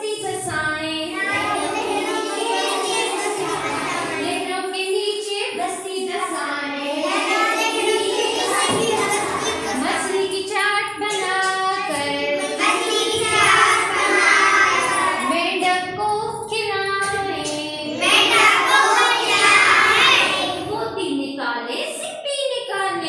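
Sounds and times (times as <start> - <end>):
children singing in chorus: 1.1 - 4.5, 6.1 - 10.4, 11.0 - 15.5, 17.0 - 20.7.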